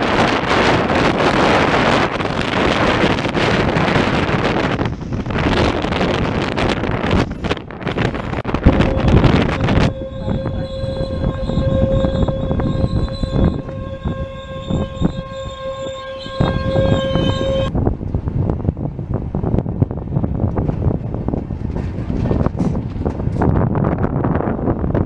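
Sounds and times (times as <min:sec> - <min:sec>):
train running: 0:00.0 - 0:25.0
wind noise: 0:00.0 - 0:25.0
train brake squeal: 0:08.8 - 0:17.7.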